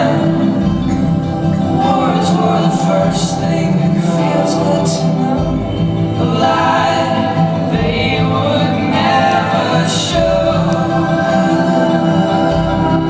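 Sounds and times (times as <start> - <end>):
choir singing sustained chords: 0.0 - 13.0.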